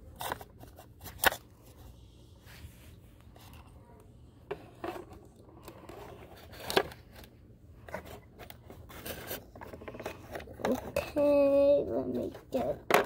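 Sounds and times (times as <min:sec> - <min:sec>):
plastic toys clicking and scraping: 0:00.0 - 0:01.5, 0:04.5 - 0:13.0.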